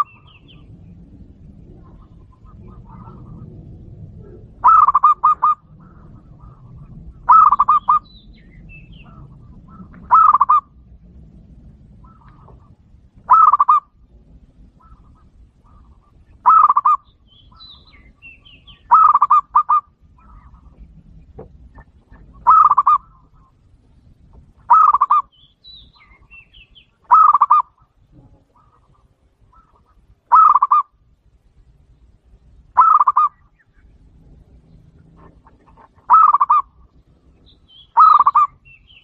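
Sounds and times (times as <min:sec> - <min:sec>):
dove cooing: 0:00.0 - 0:08.1, 0:09.0 - 0:10.8, 0:11.9 - 0:14.0, 0:14.6 - 0:21.0, 0:21.6 - 0:23.6, 0:24.7 - 0:25.3, 0:27.1 - 0:31.0, 0:32.8 - 0:33.4, 0:34.5 - 0:36.9, 0:37.9 - 0:38.6
small birds chirping: 0:00.0 - 0:11.0, 0:11.9 - 0:39.0.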